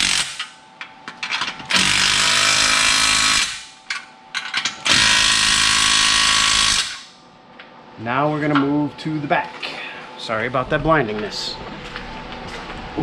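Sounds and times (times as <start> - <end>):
impact wrench running: 0.0 - 0.6, 1.7 - 3.8, 4.8 - 7.2.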